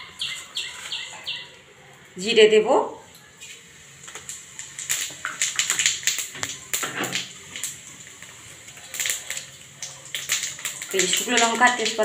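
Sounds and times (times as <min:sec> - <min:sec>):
seeds sizzling in hot oil: 0:03.3 - 0:12.0.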